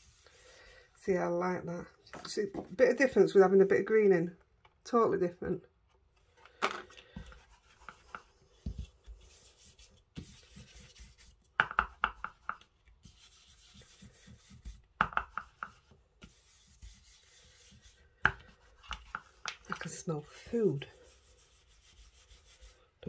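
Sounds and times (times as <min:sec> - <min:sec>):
foam tool scrubbing on card: 0:07.3 - 0:11.5, 0:12.9 - 0:22.9.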